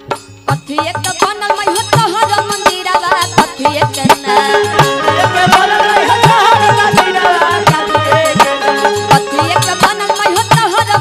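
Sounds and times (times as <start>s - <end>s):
hand drum beat: 0.0s - 11.0s
ornamented melodic instrument: 4.3s - 10.4s.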